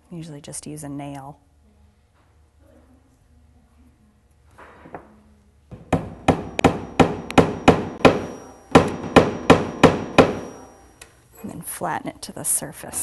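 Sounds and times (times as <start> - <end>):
hammer tapping a nail: 5.7 - 10.6.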